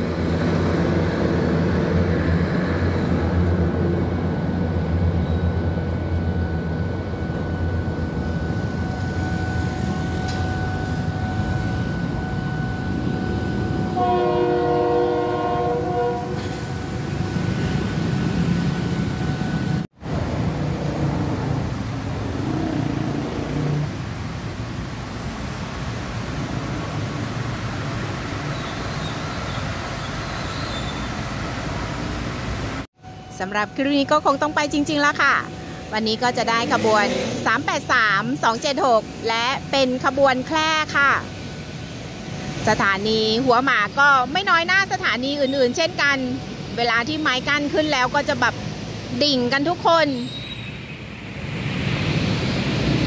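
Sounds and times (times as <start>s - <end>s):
passenger train rumbling past: 0.0s - 53.0s
train horn chord: 13.9s - 16.6s.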